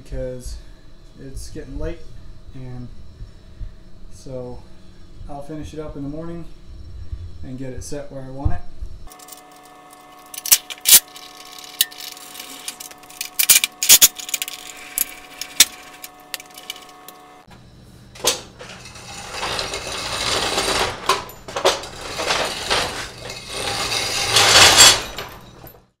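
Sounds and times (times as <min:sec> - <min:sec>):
steady hum: 0:00.0 - 0:25.8
trailer hitch metal clanking: 0:18.2 - 0:25.8.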